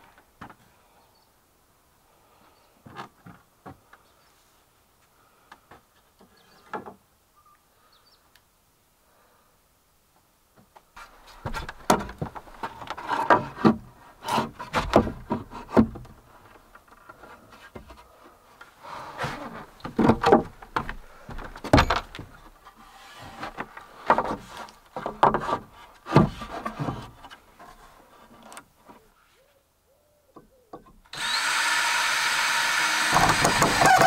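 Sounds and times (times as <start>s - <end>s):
board scraping on board: 11.0s - 16.0s, 18.8s - 20.5s, 22.7s - 28.4s
wooden boards knocking and clattering: 11.3s - 16.3s, 19.2s - 22.5s, 23.2s - 27.4s, 33.1s - 34.0s.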